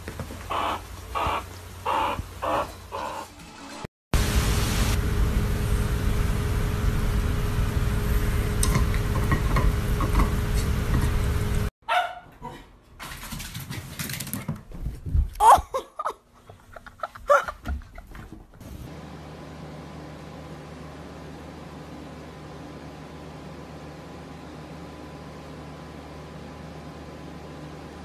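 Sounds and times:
small dog yipping: 11.9s - 12.3s.

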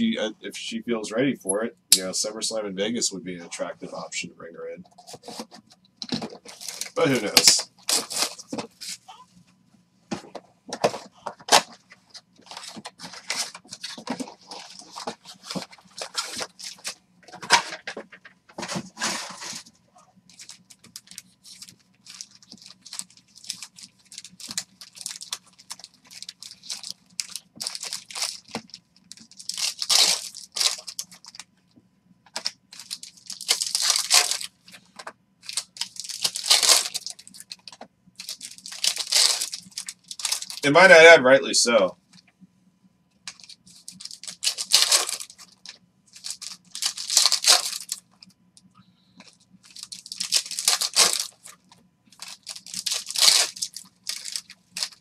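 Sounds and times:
foil wrappers tearing and crinkling: 5.0s - 9.2s, 10.8s - 17.6s, 20.3s - 31.5s, 32.3s - 40.8s, 43.3s - 48.2s, 49.2s - 55.0s.

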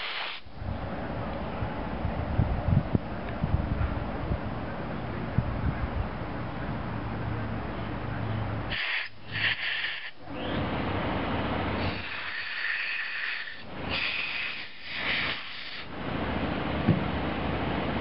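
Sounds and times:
compressed air blasts hissing: 0.0s - 0.6s, 8.7s - 10.6s, 11.7s - 16.0s
steady low hum: 0.4s - 18.0s.

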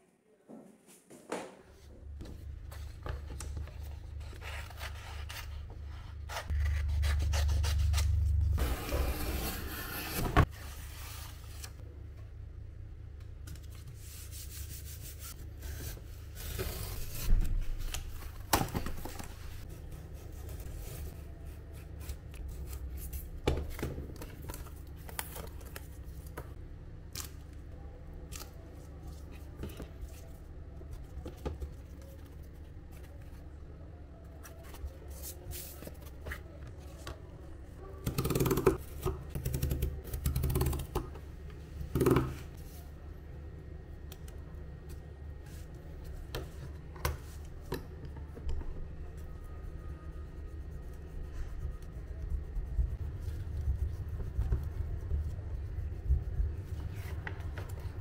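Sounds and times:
low steady hum: 1.9s - 38.1s, 38.7s - 58.0s
cardboard rubbing and scraping: 4.2s - 11.8s.

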